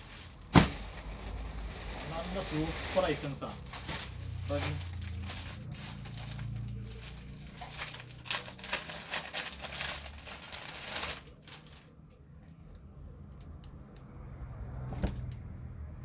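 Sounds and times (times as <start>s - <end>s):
plastic packets crinkling: 0.0s - 12.0s.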